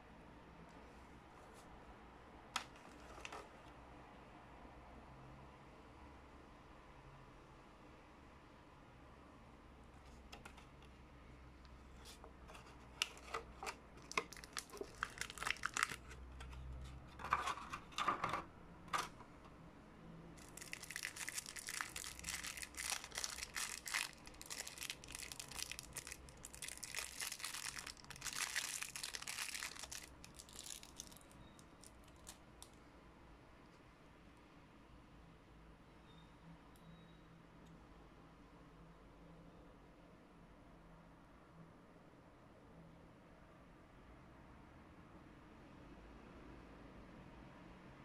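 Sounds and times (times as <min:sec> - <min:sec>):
packaging clicks and taps: 0:13.0 - 0:16.6
plastic wrapping crinkling and tearing: 0:13.1 - 0:16.5, 0:20.4 - 0:32.7.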